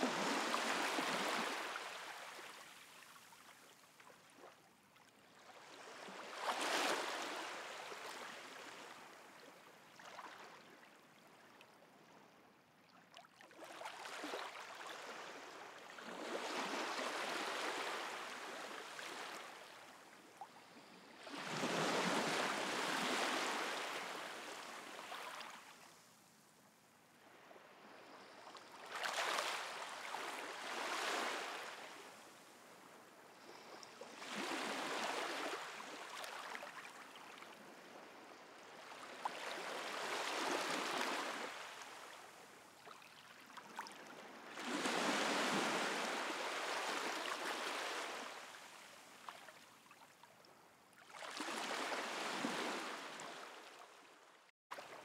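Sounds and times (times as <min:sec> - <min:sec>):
small waves washing onto shore: 0:00.0 - 0:04.6, 0:05.4 - 0:09.3, 0:13.5 - 0:26.2, 0:27.2 - 0:49.6.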